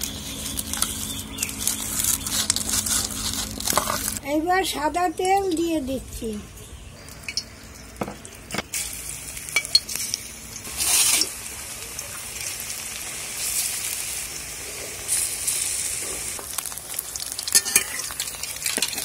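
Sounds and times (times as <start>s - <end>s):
batter sizzling in hot oil: 7.0s - 19.0s.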